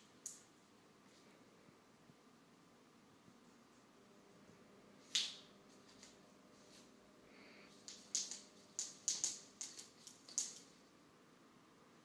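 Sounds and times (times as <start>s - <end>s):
scratchy clicks and rustles: 7.8s - 10.8s.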